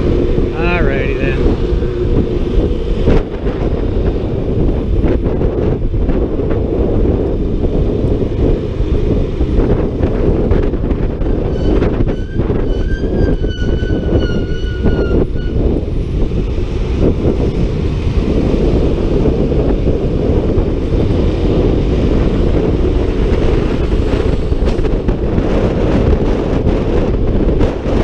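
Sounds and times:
road noise: 0.0 - 28.0
wind rushing over microphone: 0.0 - 28.0.

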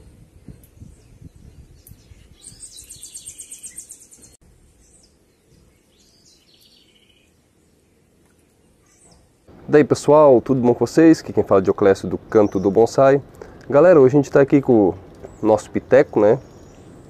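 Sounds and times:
bird chirps: 0.0 - 9.3, 15.2 - 17.0
songbird trilling: 0.5 - 7.3, 8.8 - 9.3, 15.1 - 17.0.

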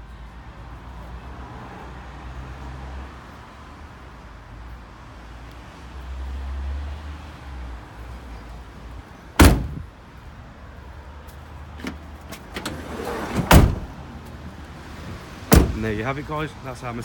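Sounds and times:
van door slamming: 9.4 - 9.9, 11.8 - 14.0, 15.0 - 16.0.

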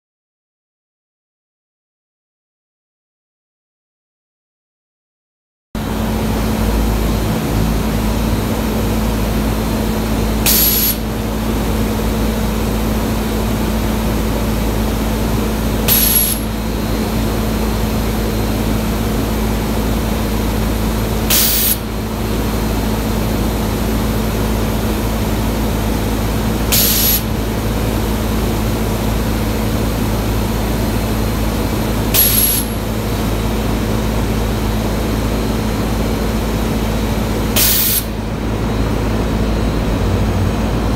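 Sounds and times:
drone of moving air: 5.8 - 40.9
compressed air hiss: 10.5 - 11.0, 15.9 - 16.5, 21.3 - 21.8, 26.7 - 27.3, 32.2 - 32.8, 37.6 - 38.0.

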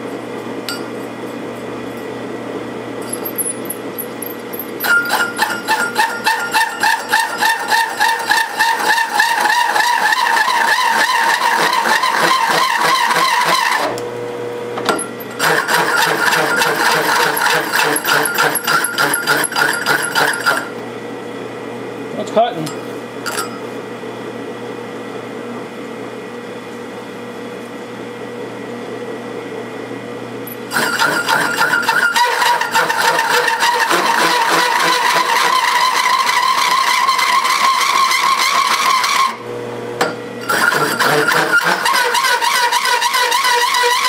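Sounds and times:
drill press motor humming: 3.0 - 20.9, 30.5 - 44.0
hole saw screeching into metal: 4.8 - 13.9, 15.3 - 20.7, 30.7 - 39.4, 40.4 - 44.0.

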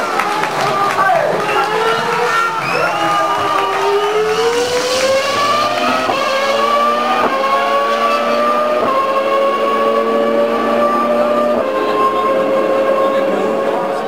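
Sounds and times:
gear upshifts: 0.0 - 14.0
racing car engine at high revs: 0.0 - 14.0.

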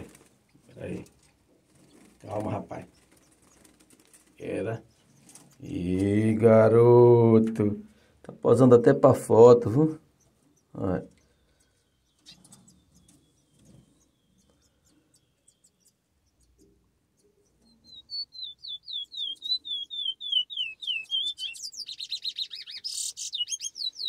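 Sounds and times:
fledgling bird high chirps: 10.1 - 24.0.

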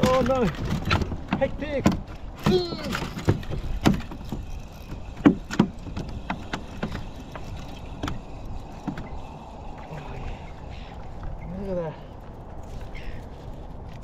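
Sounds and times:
sharp knocks: 0.0 - 7.1
wind and water noise: 0.0 - 14.0.

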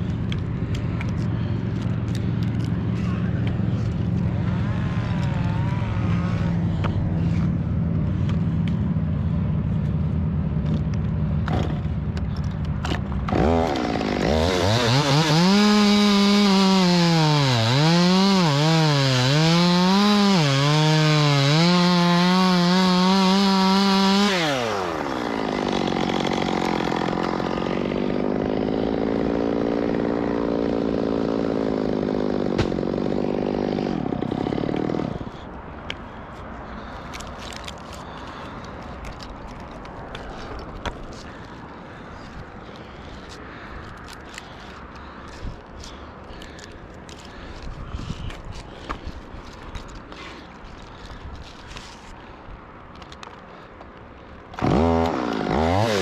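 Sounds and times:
chainsaw idling and revving: 0.0 - 47.7, 54.5 - 56.0
chainsaw cutting through trunk: 12.8 - 35.5, 54.5 - 56.0.

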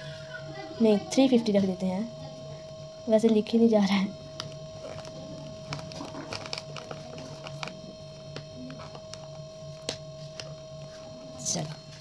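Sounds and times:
steady low hum: 0.0 - 12.0
pen scratching on plastic: 4.8 - 7.9.

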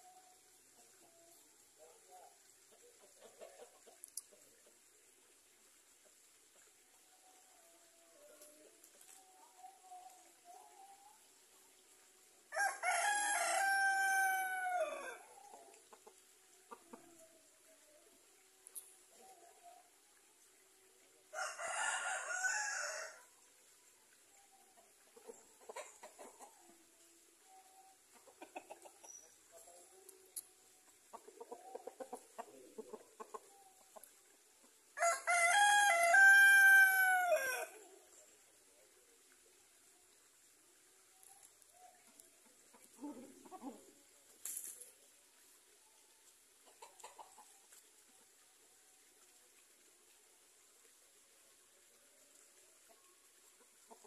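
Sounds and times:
chicken clucking: 0.8 - 4.9, 14.4 - 17.3, 24.7 - 34.8, 41.3 - 44.9, 46.6 - 48.3, 52.8 - 54.0
rooster crowing: 12.5 - 15.2, 21.3 - 23.2, 35.0 - 37.8.

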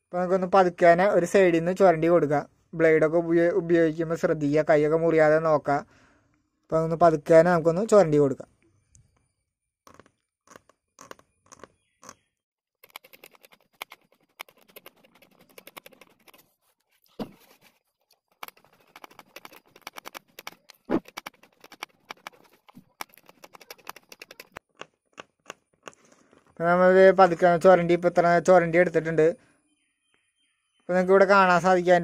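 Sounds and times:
razor blade scraping plastic: 9.9 - 12.2, 12.8 - 26.1.

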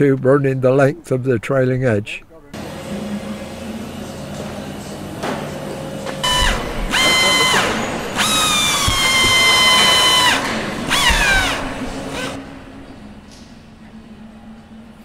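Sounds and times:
cordless drill whining: 6.2 - 12.4.

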